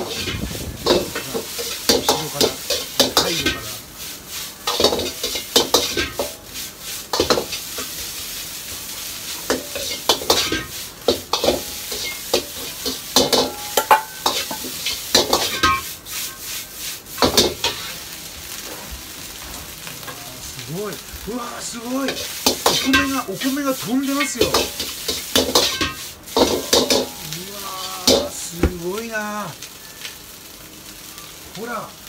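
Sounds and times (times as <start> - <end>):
rice sizzling in a wok: 0.0 - 32.0
metal utensil clanging on wok: 9.5 - 15.9, 22.5 - 27.3, 28.0 - 28.8.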